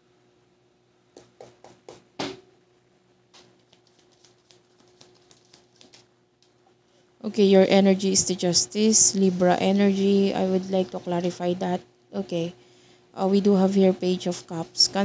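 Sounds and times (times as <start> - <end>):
cards tapping on wooden table: 1.2 - 2.4
cards shuffling: 3.4 - 6.1.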